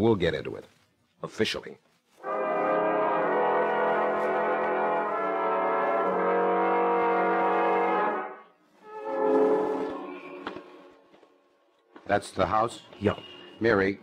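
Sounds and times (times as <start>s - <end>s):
brass sustained chords: 2.2s - 10.6s.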